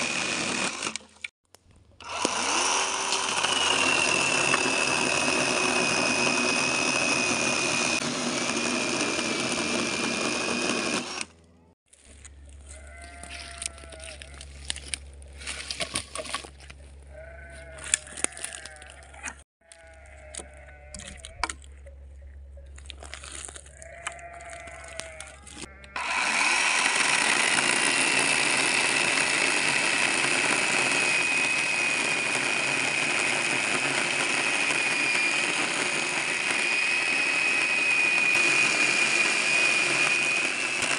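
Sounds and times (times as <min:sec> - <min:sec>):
electric chainsaw cutting log: 0:00.0 - 0:01.3, 0:02.0 - 0:11.4, 0:25.6 - 0:40.9
animals bleating: 0:12.6 - 0:14.7, 0:17.0 - 0:21.6, 0:23.6 - 0:26.0.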